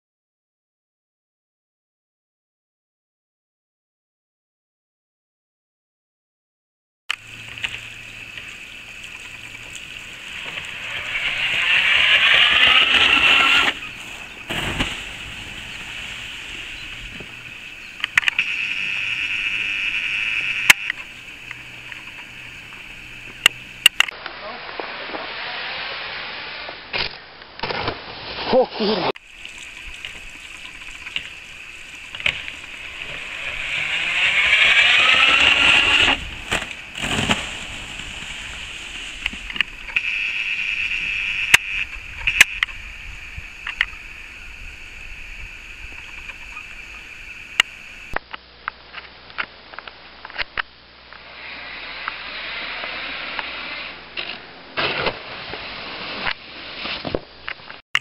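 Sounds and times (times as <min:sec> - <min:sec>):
skis hissing down ski jump: 0:07.1 - 0:26.9, 0:27.8 - 0:48.2, 0:51.2 - 0:57.2.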